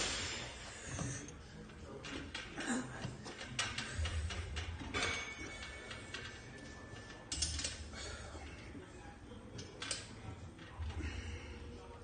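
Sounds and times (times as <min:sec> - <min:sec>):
weight machine clicks and clanks: 0:02.0 - 0:07.8.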